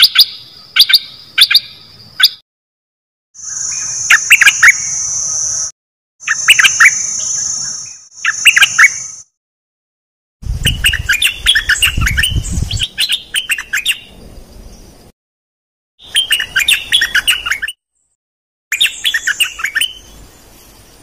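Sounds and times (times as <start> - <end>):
bird singing bubbling phrases: 10.5 - 14.2, 16.0 - 17.8, 18.7 - 20.2.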